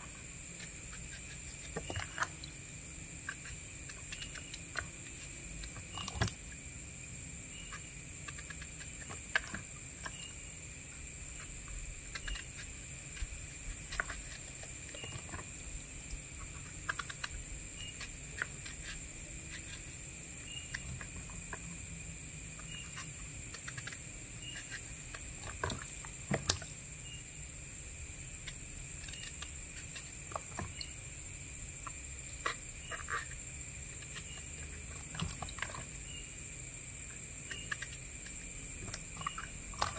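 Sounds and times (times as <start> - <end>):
crickets chirping: 0.0 - 39.9
knife cutting eggplant: 0.4 - 2.4, 3.2 - 6.4, 7.6 - 10.3, 11.4 - 15.5, 16.1 - 21.9, 22.6 - 26.7, 28.3 - 30.9, 31.8 - 36.2, 37.1 - 39.9.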